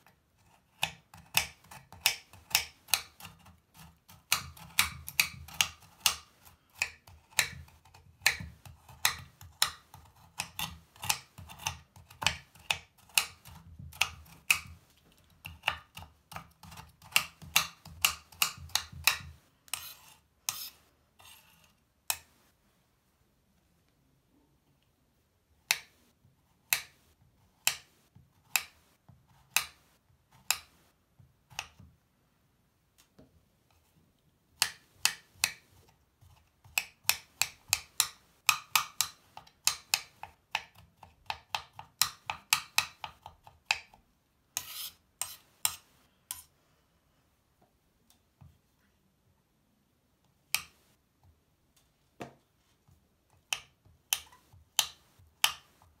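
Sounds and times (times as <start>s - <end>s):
knife chopping on cutting board: 0.8s - 14.8s.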